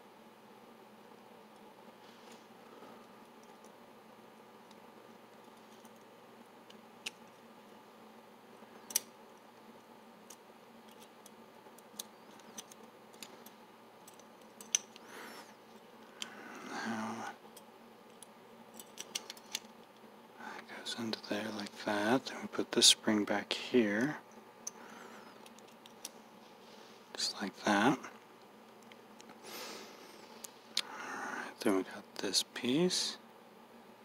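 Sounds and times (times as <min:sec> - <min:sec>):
metal lock parts clicking: 0:10.3 - 0:13.3, 0:14.0 - 0:15.0, 0:17.6 - 0:19.7.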